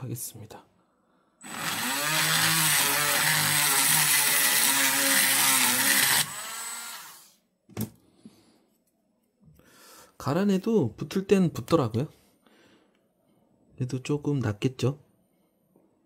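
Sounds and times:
rotary tool grinding metal: 1.4 - 7.2.

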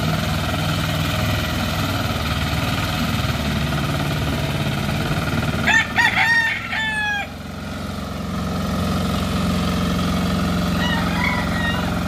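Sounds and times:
machine churning through mud: 0.0 - 6.7, 7.3 - 12.0
tiller engine running: 0.0 - 12.0.

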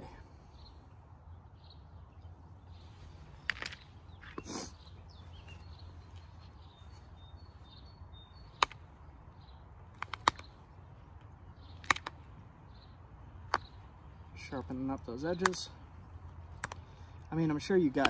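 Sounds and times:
flint flakes snapping clicks: 8.5 - 8.9, 9.9 - 12.4, 13.4 - 13.9, 14.7 - 15.6, 16.5 - 17.3.

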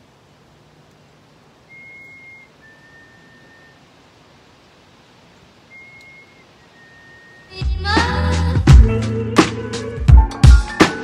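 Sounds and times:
person whistling two-note call: 1.7 - 3.8, 5.7 - 7.6.

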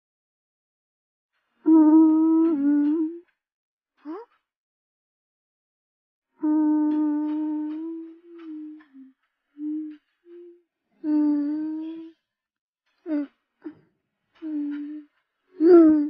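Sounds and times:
child humming: 1.6 - 3.2, 4.1 - 4.3, 6.4 - 12.2, 13.1 - 13.8, 14.4 - 16.0.

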